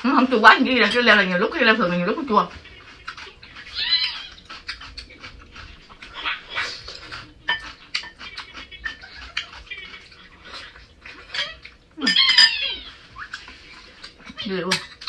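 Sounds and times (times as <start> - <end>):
chewing: 0.6 - 15.0
chopsticks clicking against bowls: 6.9 - 10.2.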